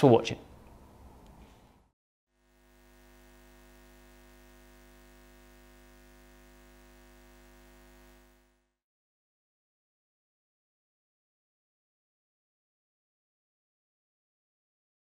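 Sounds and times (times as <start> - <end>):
faint steady low hum: 2.4 - 8.7.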